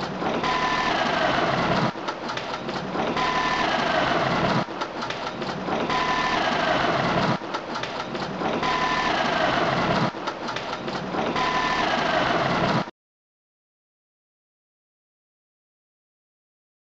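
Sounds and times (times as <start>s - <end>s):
diesel engine running: 0.0s - 12.9s.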